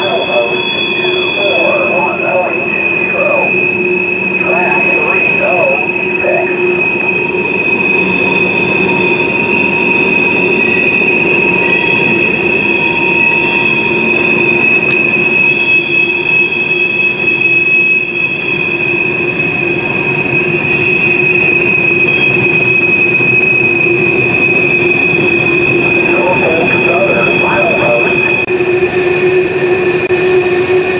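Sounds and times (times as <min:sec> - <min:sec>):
train wheels squealing on rails: 0:00.0 - 0:01.6, 0:06.6 - 0:26.2.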